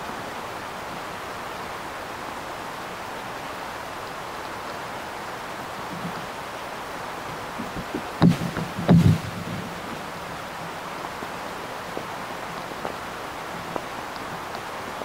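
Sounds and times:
steady hiss: 0.0s - 15.0s
dull thumps: 7.6s - 9.9s.

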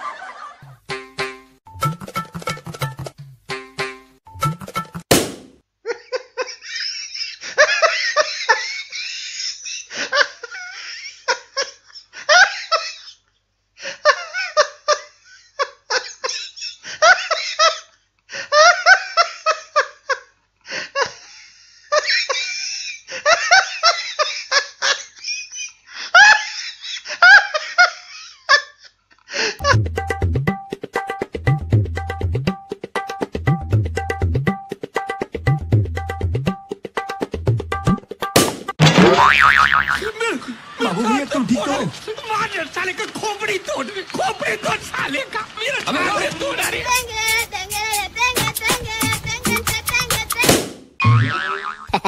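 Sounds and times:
people laughing: 0.0s - 0.6s, 40.0s - 50.1s
balloon bursting: 5.1s - 5.6s, 38.4s - 40.0s, 50.3s - 51.4s.

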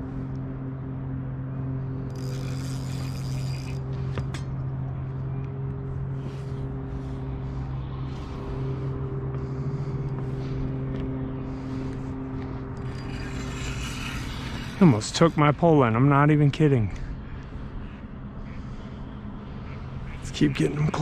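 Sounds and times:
motor humming: 0.0s - 16.0s.

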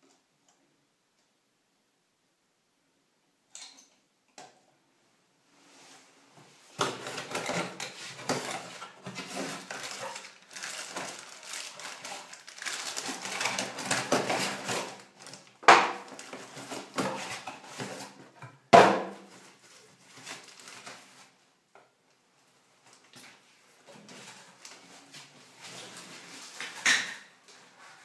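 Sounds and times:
paper wrapping rustling: 6.7s - 18.2s, 19.2s - 21.4s.

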